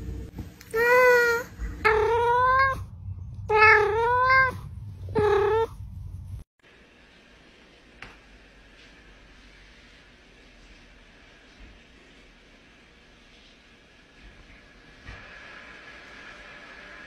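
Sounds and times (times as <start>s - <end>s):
cat meowing: 0.7s - 2.8s, 3.5s - 5.7s.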